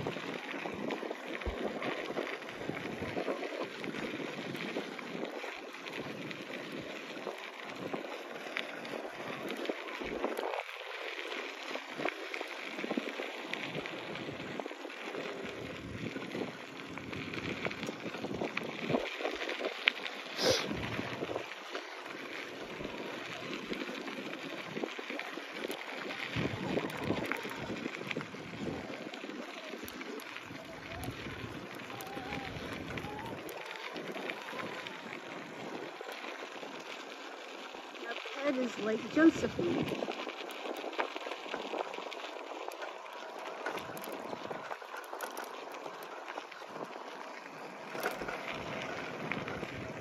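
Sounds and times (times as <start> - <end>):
wind buffeting microphone: 0.0 - 36.8, 37.9 - 45.8, 46.6 - 50.0
bicycle tyres crunching on gravel: 0.0 - 50.0.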